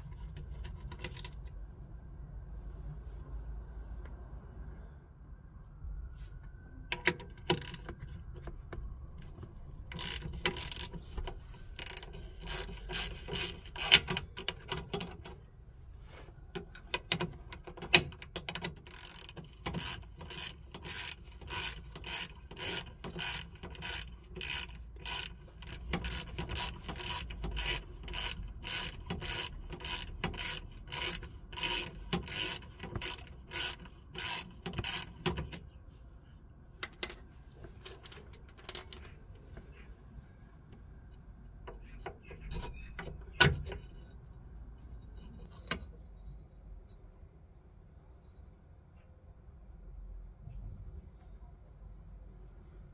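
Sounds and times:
socket ratchet clicking: 7.0 - 8.1, 9.9 - 15.4, 16.7 - 35.6.

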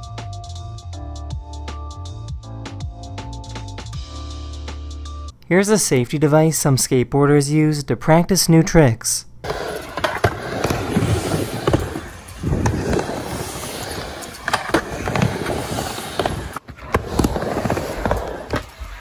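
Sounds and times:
skateboard wheels rolling on ramp: 9.4 - 19.0.

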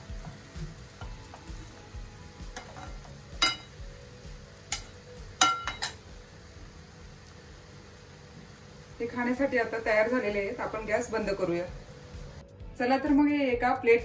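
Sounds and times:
noodles frying sizzle: 0.0 - 12.5
metal tongs clinking on pan: 2.6 - 3.8, 4.7 - 6.0.

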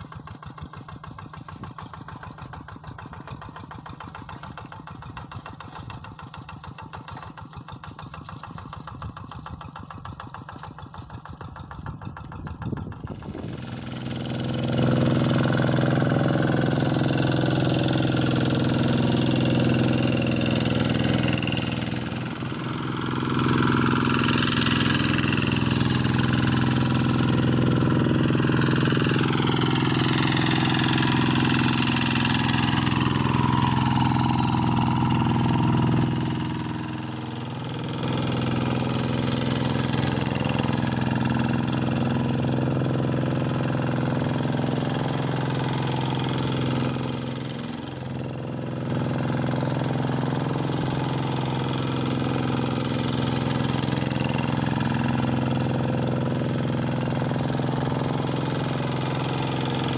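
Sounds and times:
diesel engine running under load: 0.0 - 59.9.

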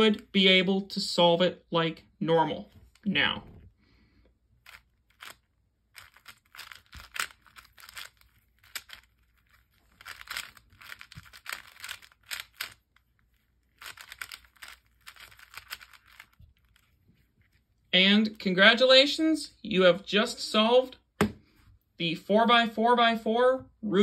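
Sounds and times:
puzzle cube clacking turns: 4.6 - 17.0.

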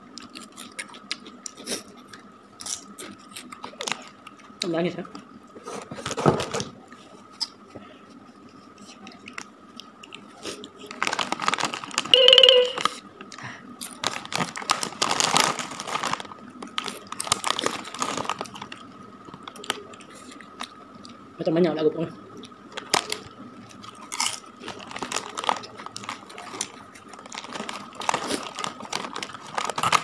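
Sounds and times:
chips crunching while chewing: 0.1 - 4.6, 9.2 - 12.1, 13.8 - 21.2, 22.4 - 30.0
foil chip bag crackling: 10.8 - 12.9, 13.8 - 20.7, 22.7 - 30.0
short voiced sound: 12.2 - 12.8.

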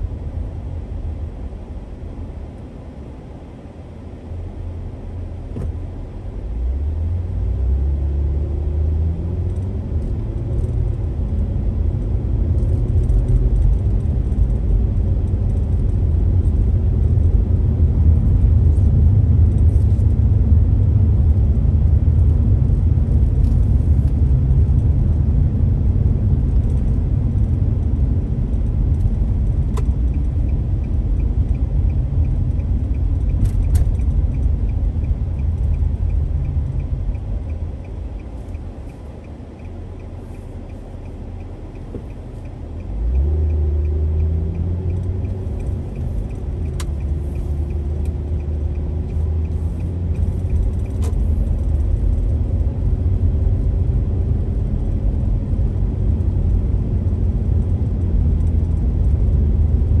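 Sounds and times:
car engine and tyre rumble: 0.0 - 60.0.

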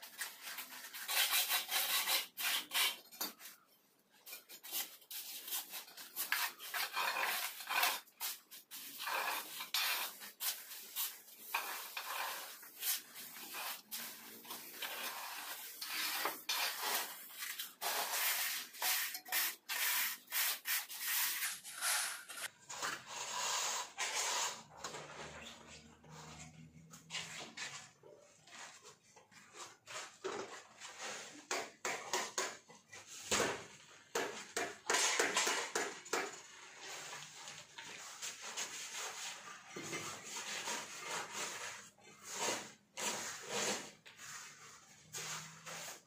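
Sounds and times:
plastering tools scraping mortar: 0.0 - 46.0.

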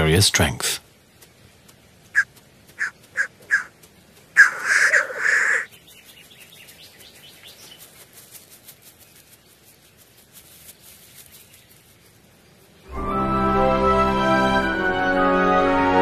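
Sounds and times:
black grouse calling: 2.1 - 7.9
harsh hissing bird call: 4.4 - 5.7.

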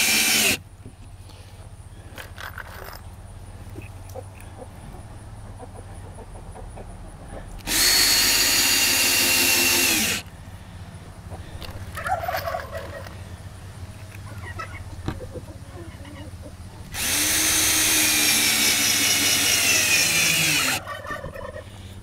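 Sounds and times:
cordless drill driving a screw: 0.0 - 0.6, 7.6 - 10.3, 16.9 - 20.8
turkey gobbling: 12.0 - 13.1, 14.3 - 16.5, 20.8 - 21.7.

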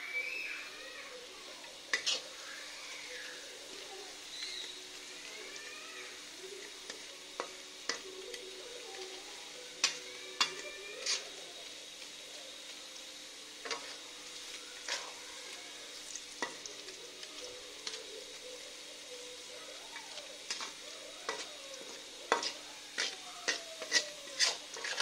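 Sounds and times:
onions sizzling in hot oil: 0.0 - 25.0
metal spatula scraping a pan: 1.7 - 3.6, 6.0 - 8.5, 9.4 - 11.6, 13.6 - 14.0, 20.4 - 25.0.

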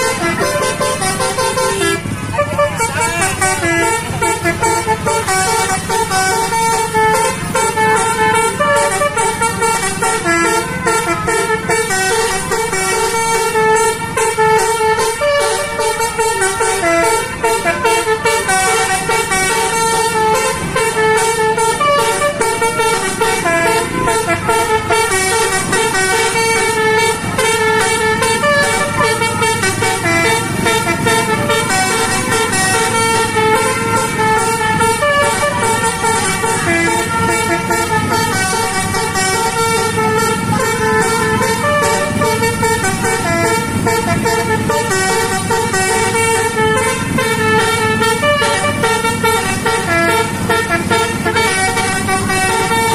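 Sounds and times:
low engine rumble: 0.0 - 52.9
multi-tone air horn tune: 0.0 - 52.9.

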